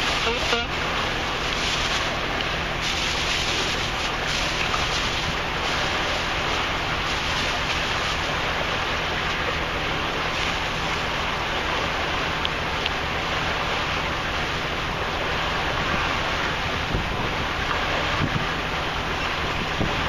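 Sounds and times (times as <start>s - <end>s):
boat engine hum: 0.0s - 20.0s
wind and water rushing: 0.0s - 20.0s.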